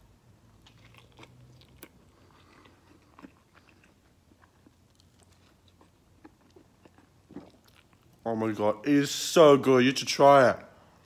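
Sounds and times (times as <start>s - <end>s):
person biting and chewing: 0.5s - 8.2s.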